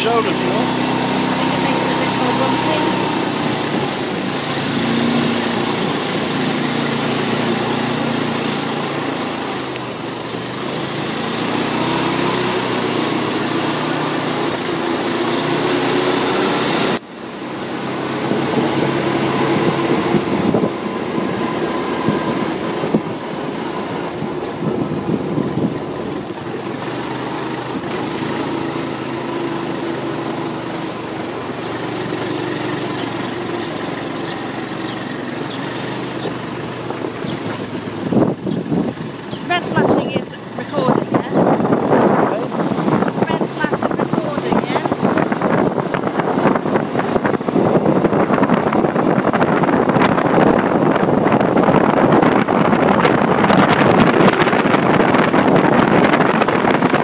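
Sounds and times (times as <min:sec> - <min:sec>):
quad bike engine running: 0:00.0 - 0:57.0.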